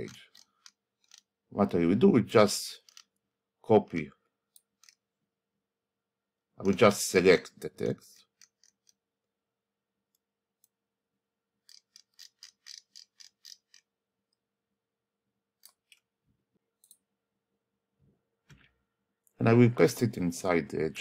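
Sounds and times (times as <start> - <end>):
computer mouse clicking: 0.0 - 1.3, 2.8 - 3.1, 11.6 - 13.9.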